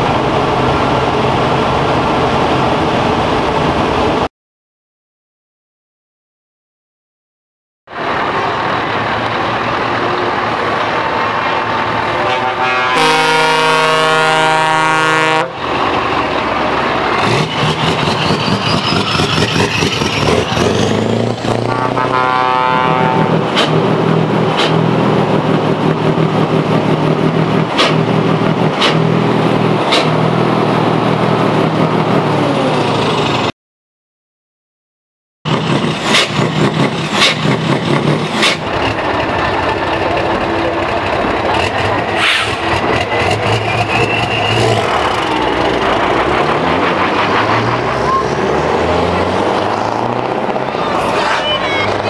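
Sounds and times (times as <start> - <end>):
truck engine driving past: 7.9 - 33.5, 35.5 - 52.0
multi-tone air horn: 12.2 - 15.6, 21.7 - 23.4.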